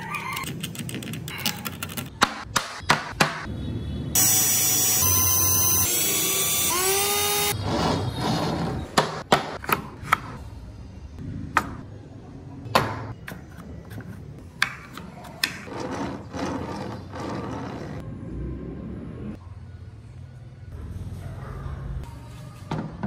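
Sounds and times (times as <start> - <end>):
toy wheels rolling on table: 15.6 - 18.0.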